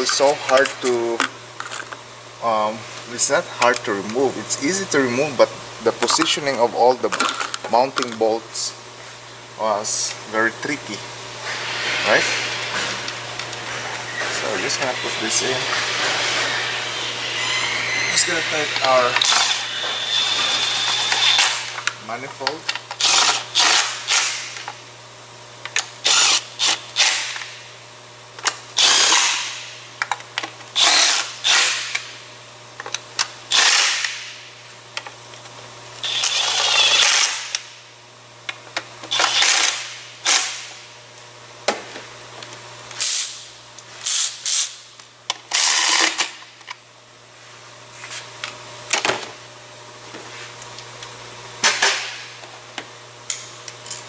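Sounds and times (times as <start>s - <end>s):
power tool running in bursts: 14.3s - 21.8s, 26.0s - 27.4s, 28.8s - 29.6s, 30.8s - 32.0s, 33.5s - 34.2s, 36.0s - 37.6s, 39.1s - 40.7s.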